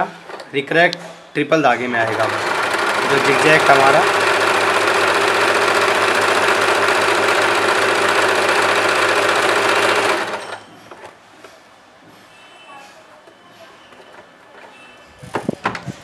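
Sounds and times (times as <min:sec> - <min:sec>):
sewing machine running: 0:01.9 - 0:10.8.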